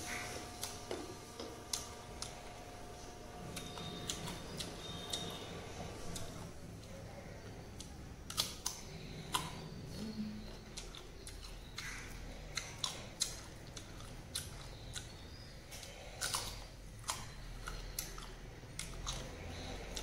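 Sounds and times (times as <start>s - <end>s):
crunching raw mango: 10.5s - 20.0s.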